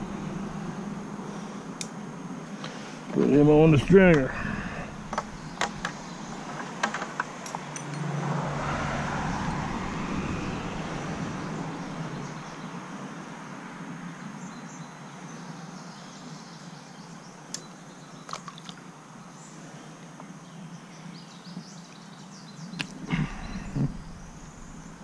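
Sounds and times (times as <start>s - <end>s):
river water flowing: 0.0s - 12.9s, 22.8s - 25.0s
knocks and handling noises: 5.1s - 8.0s
faint bird chirps: 19.4s - 25.0s.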